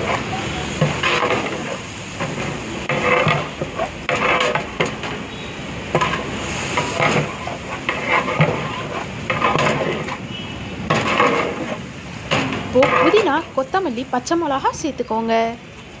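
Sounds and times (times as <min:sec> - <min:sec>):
metal ladle scraping a pot: 0:00.0 - 0:13.7
oil sizzling: 0:00.0 - 0:15.2.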